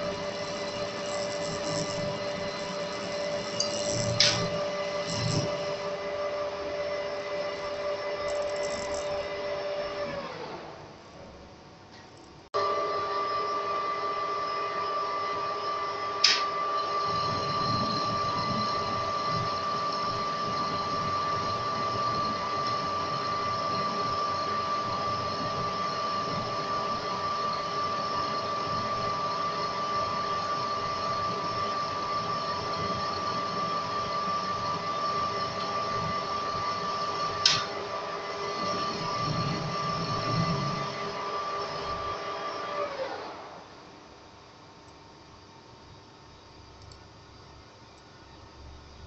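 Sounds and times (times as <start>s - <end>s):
metal lathe whining: 0.0s - 10.8s, 12.6s - 43.8s
sharp click: 16.2s - 16.5s, 37.4s - 37.7s.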